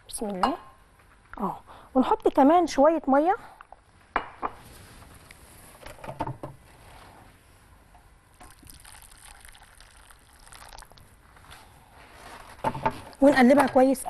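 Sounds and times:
water pouring into liquid: 8.4s - 11.2s.

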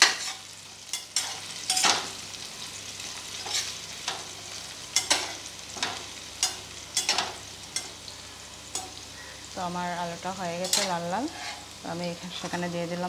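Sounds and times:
metal spatula scraping a pot: 0.0s - 2.0s, 3.4s - 4.2s, 10.6s - 11.7s
potatoes sizzling in oil: 0.0s - 13.0s.

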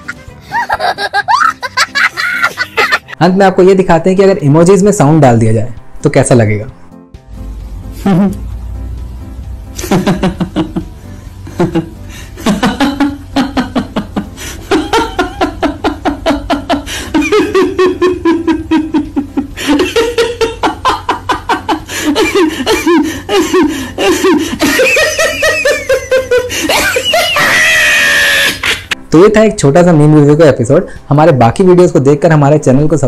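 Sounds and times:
person laughing: 0.0s - 3.2s, 8.0s - 8.5s, 9.8s - 29.0s.

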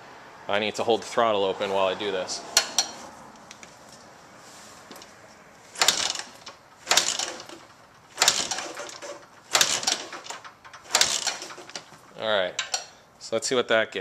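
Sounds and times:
motorcycle kick-starter clanking: 2.6s - 3.0s, 4.9s - 13.0s.

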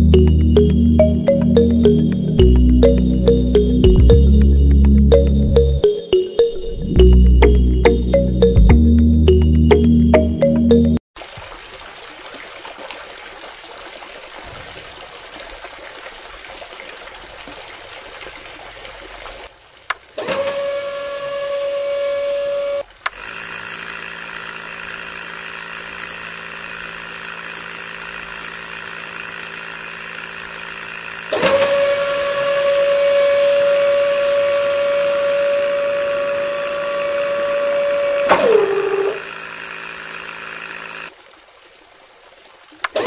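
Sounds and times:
small motor whine: 20.2s - 41.2s.

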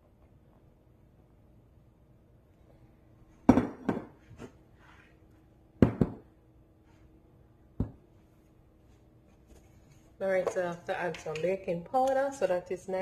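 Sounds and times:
bowls knocking on countertop: 3.5s - 4.2s, 5.8s - 6.3s.

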